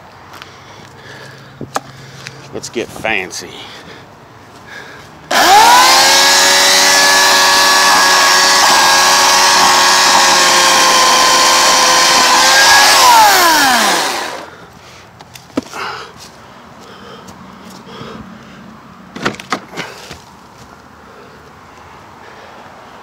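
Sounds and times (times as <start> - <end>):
electric chainsaw cutting: 5.3 - 14.5.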